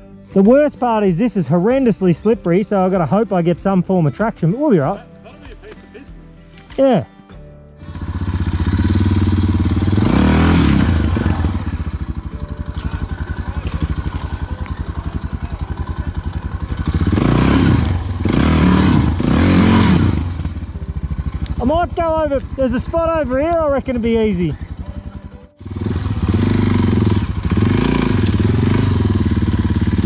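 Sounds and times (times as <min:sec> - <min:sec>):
motorcycle engine idling and revving: 0:07.8 - 0:30.0.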